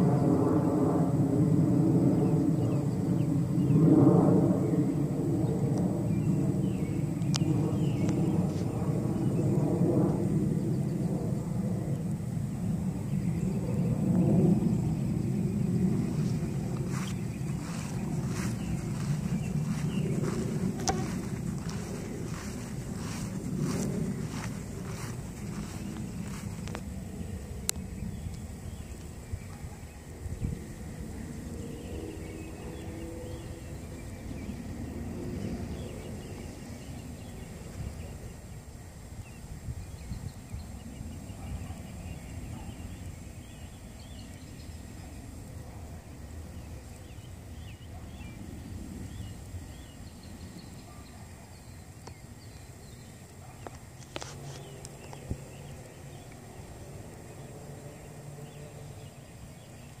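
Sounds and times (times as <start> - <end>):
low steady rumble: 6.8 - 40.1
bird chirps: 14.7 - 26.8.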